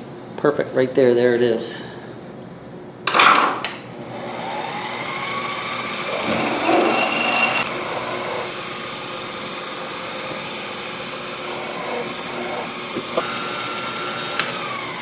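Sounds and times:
mill spindle motor whining: 4.2 - 15.0.

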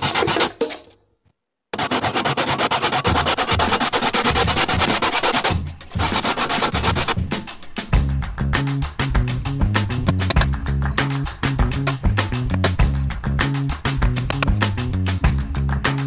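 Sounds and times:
saw rasping through wood: 1.8 - 7.2.

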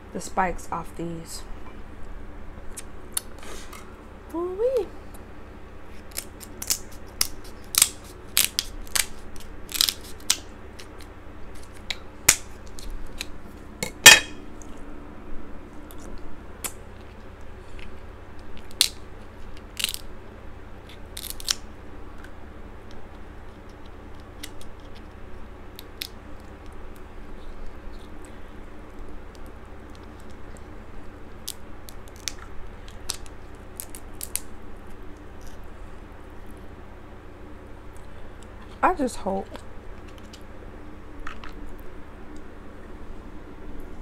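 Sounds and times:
steady low hum: 0.0 - 44.0
scissors snipping crab shell: 6.1 - 13.3
shell cracking by hand: 6.1 - 14.3.

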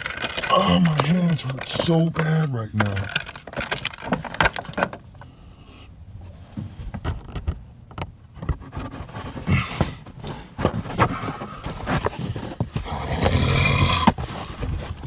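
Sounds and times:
plastic clicks and scrapes: 0.0 - 2.2, 2.8 - 5.3.

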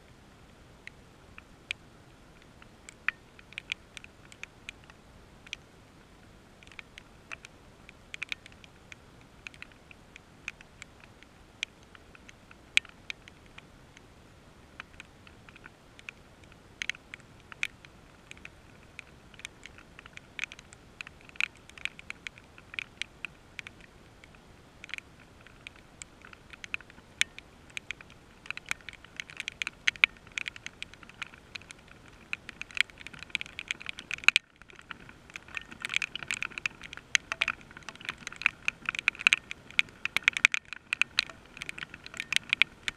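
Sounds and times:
raindrops tapping on hard surface: 14.8 - 42.9.

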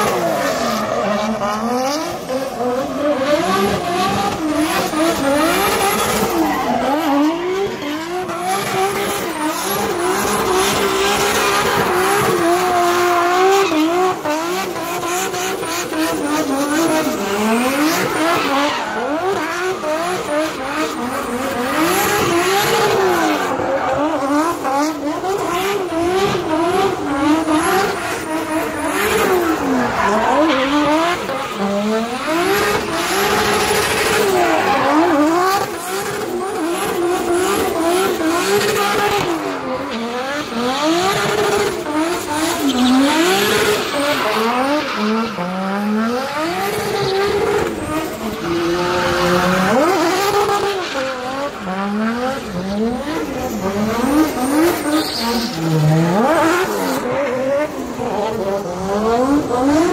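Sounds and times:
car engine revving: 0.0 - 59.9
tyre screech: 17.2 - 24.8, 27.5 - 35.7, 53.7 - 56.4.

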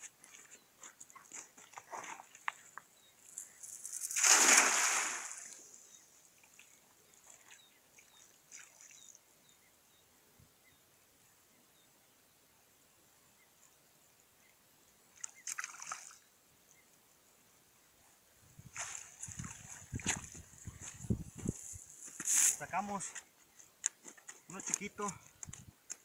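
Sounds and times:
cast net splashing on water: 4.0 - 5.6, 15.4 - 16.2.

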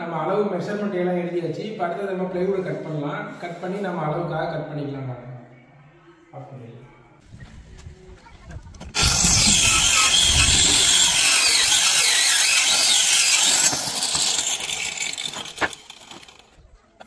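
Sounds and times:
electric saw cutting plywood: 8.9 - 16.5.

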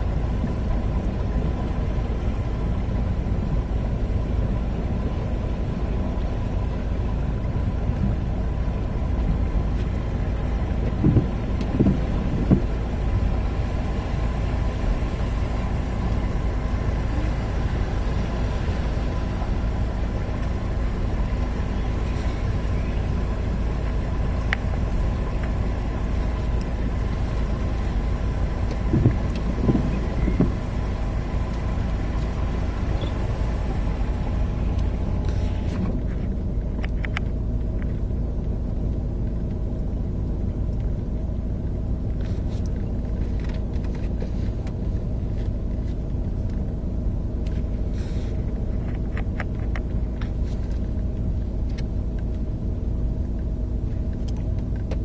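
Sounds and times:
car rumbling through floodwater: 0.0 - 55.0
hiss: 47.9 - 48.4.

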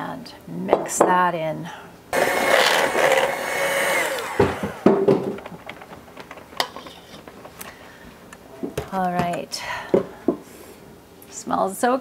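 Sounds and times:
electric hand mixer whining: 2.2 - 6.0
knocks: 4.3 - 5.7.

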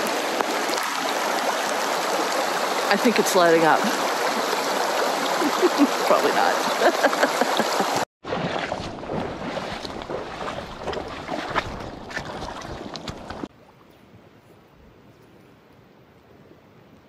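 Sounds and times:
stream water rushing: 0.0 - 13.5
footsteps on river cobbles: 5.4 - 13.5.

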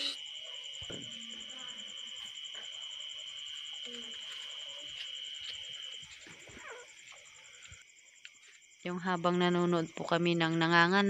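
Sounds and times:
night insects chirring: 0.0 - 11.0.

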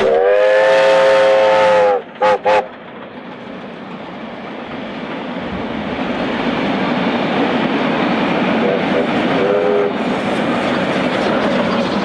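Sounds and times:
steam whistle blasts: 0.0 - 2.7, 9.4 - 10.0
train carriages rumbling past: 0.0 - 12.0.

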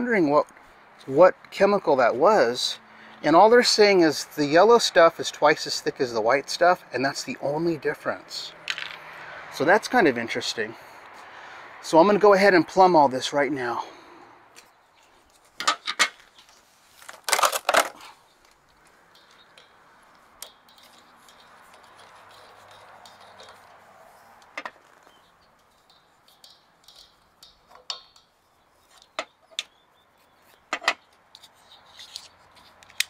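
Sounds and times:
metal fittings clinking on metal box: 19.1 - 23.8, 24.5 - 29.7.

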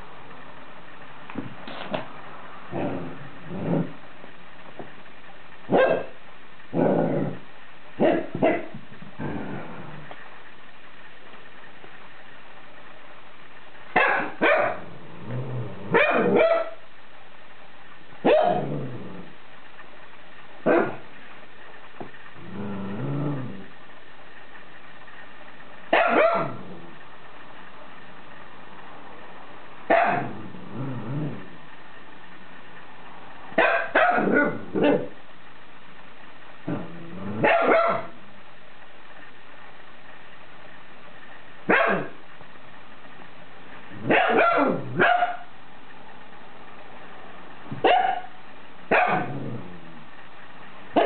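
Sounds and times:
puppy barking: 5.7 - 6.2, 8.0 - 8.8, 14.0 - 14.8, 15.9 - 16.8, 18.2 - 18.7, 20.6 - 21.0, 25.9 - 26.6, 29.9 - 30.4, 33.6 - 35.2, 37.4 - 38.2, 41.7 - 42.2, 44.0 - 45.5, 47.8 - 49.4.

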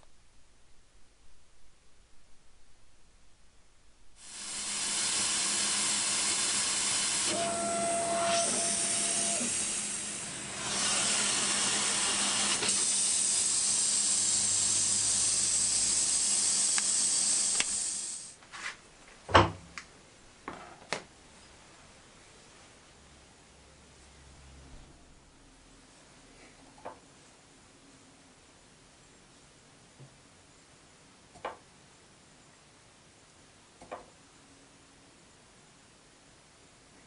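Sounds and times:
air assist hissing: 4.2 - 18.4.

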